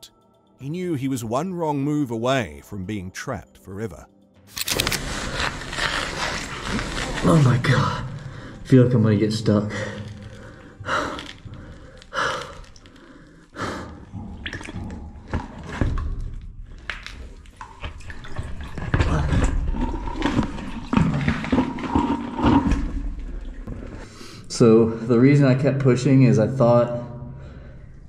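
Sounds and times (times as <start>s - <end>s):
water sloshing and splashing: 4.8s - 8.7s, 9.8s - 24.0s
close breathing: 9.7s - 14.2s.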